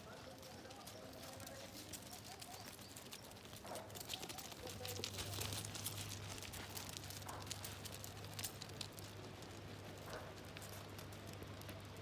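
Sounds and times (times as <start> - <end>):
hooves clattering on gravel: 0.0 - 12.0.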